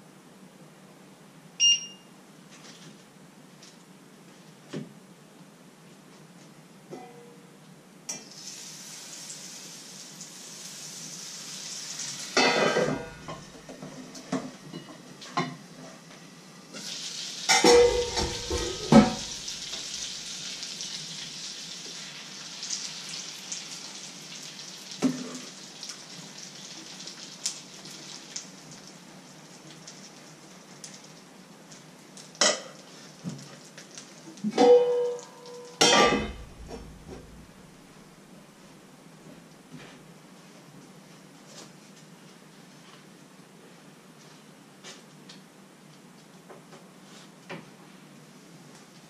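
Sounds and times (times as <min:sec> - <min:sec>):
frying pan sizzling: 0:08.2 - 0:15.3, 0:16.4 - 0:35.2, 0:35.8 - 0:38.2
metal pots and lid clattering: 0:12.4 - 0:13.5, 0:17.5 - 0:19.4, 0:35.8 - 0:37.3.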